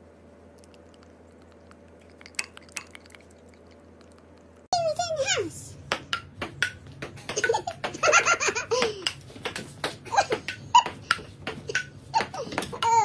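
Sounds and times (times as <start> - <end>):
ping-pong ball bouncing: 5.9 - 13.0.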